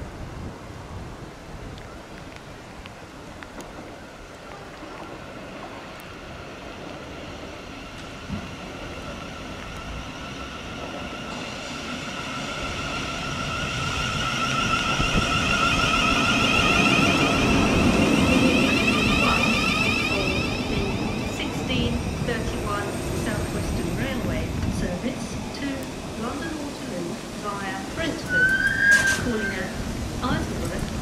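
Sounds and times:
wheels rumbling on rail: 0.0s - 31.0s
train motor whine: 9.2s - 29.6s.

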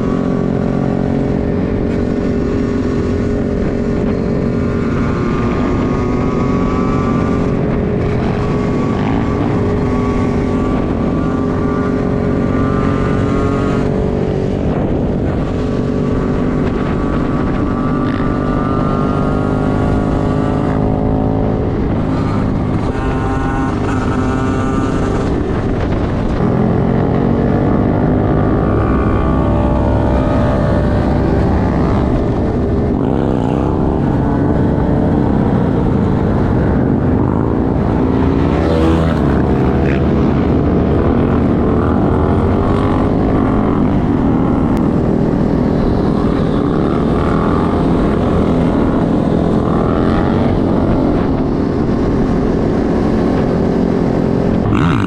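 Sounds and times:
motorcycle engine revving: 0.0s - 55.0s
other motorcycle engines: 0.0s - 55.0s.

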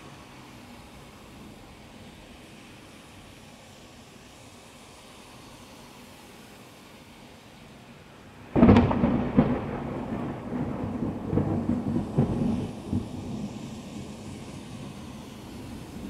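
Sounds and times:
heavy rain: 0.0s - 16.0s
thunderclap: 8.5s - 14.2s.

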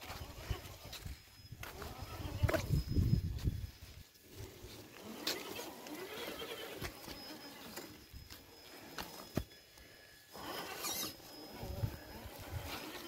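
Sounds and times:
rc truck motor whine: 4.6s - 13.0s.

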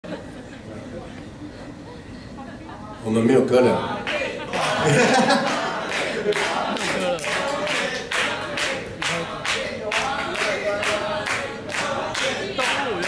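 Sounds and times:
voices singing or chanting: 3.4s - 13.0s
hands clapping in a steady beat: 5.4s - 13.0s.

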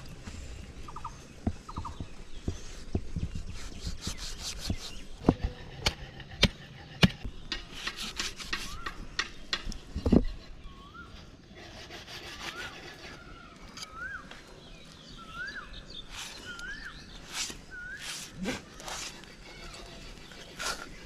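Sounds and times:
knife scraping meat: 17.2s - 21.0s.

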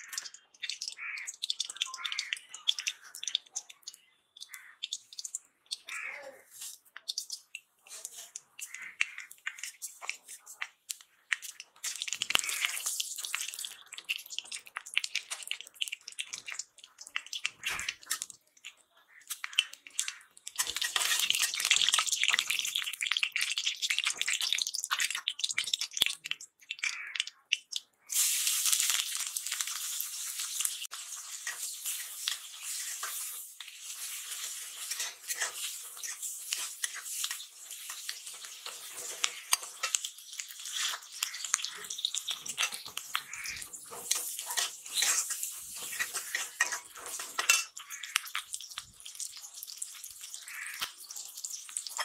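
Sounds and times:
metal spatula stirring: 0.0s - 52.0s
seeds crackling in hot oil: 0.0s - 52.0s
onions sizzling in oil: 11.4s - 16.6s, 19.3s - 25.9s, 28.0s - 52.0s.

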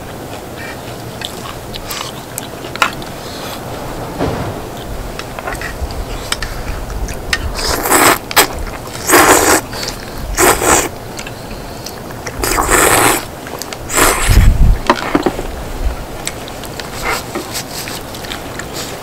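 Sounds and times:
person eating noisily: 7.4s - 14.5s.

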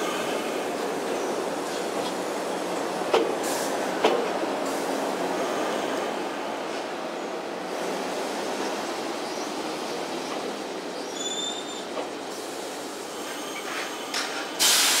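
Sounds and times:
train wheels rumbling on rail: 0.0s - 15.0s
high squeal: 11.0s - 11.9s
loud hiss: 14.6s - 15.0s.

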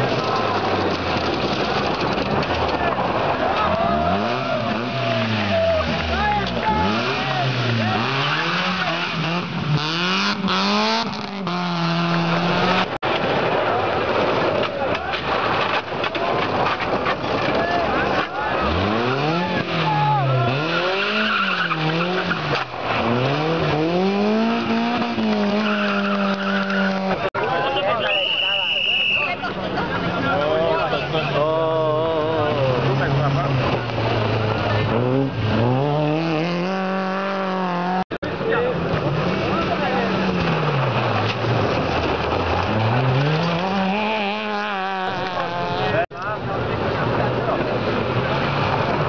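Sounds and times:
tyres sliding on gravel: 0.0s - 8.9s, 38.2s - 49.0s
rally car engine revving: 0.0s - 27.4s, 29.5s - 49.0s.

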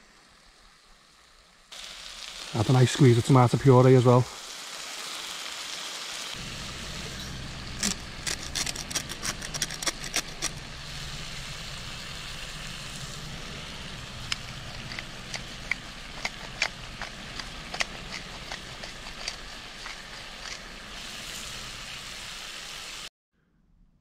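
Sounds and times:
food sizzling in a frying pan: 0.0s - 23.1s
salt grinder clicking: 7.8s - 10.6s, 14.2s - 20.7s.

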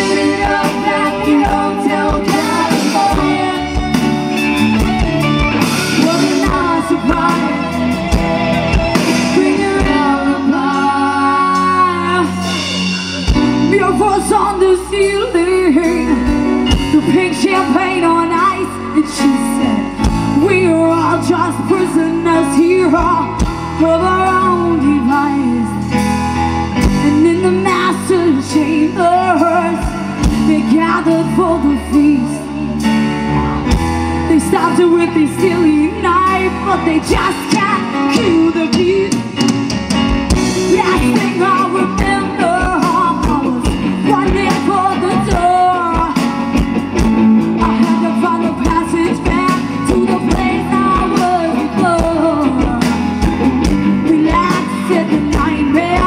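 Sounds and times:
woman singing: 0.0s - 12.8s, 13.4s - 26.0s, 26.8s - 32.8s, 34.2s - 39.5s, 40.4s - 56.0s
bass guitar: 0.0s - 56.0s
drums: 0.0s - 56.0s
electric guitar: 0.0s - 56.0s
keyboards: 0.0s - 56.0s.

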